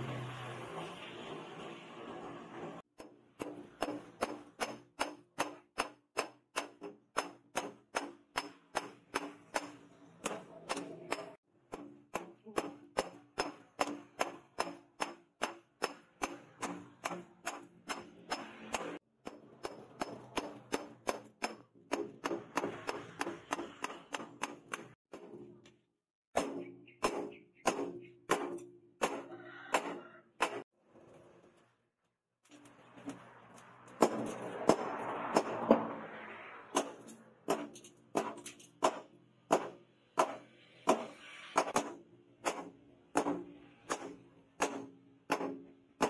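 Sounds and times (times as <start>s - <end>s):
hammer striking hot metal on anvil: 3.0s - 24.9s.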